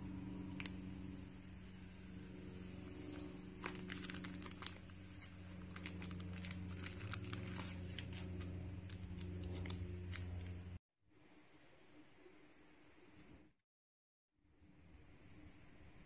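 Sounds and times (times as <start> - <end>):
steady low hum: 0.0 - 13.6
slime crackling and popping: 3.6 - 10.6.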